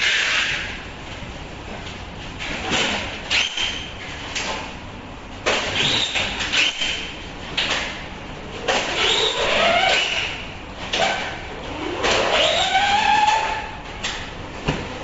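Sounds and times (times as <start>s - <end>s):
squeak of board rubbing: 5.8s - 7.1s, 8.8s - 10.4s, 12.1s - 13.8s.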